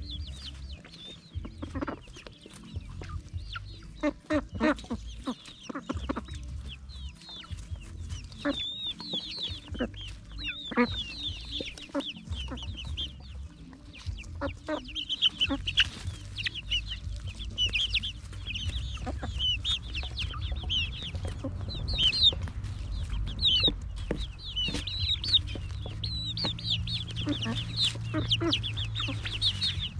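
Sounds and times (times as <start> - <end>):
chicks chirping and trilling: 0.0 - 29.9
pecking taps on the ground: 22.2 - 28.5.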